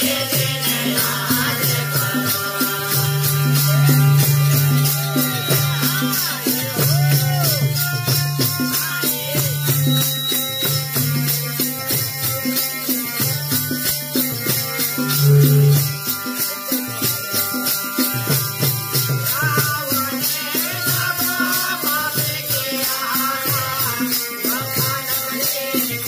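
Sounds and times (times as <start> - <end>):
harmonium chords: 0.0 - 6.8, 14.4 - 19.8
hand drum beat: 0.0 - 25.0
jingling metal percussion: 0.0 - 26.0.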